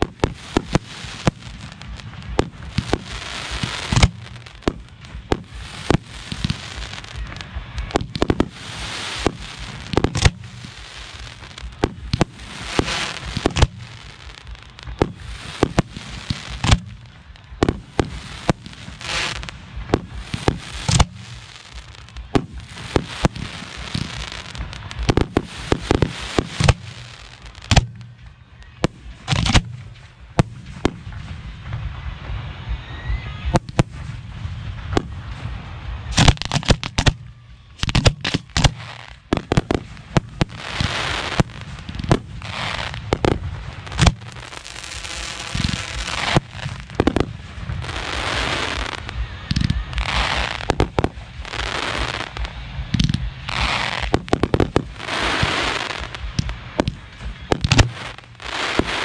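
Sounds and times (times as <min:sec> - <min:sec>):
fireworks bangs: 0:00.0 - 0:59.0
fireworks crackling: 0:00.0 - 0:59.0.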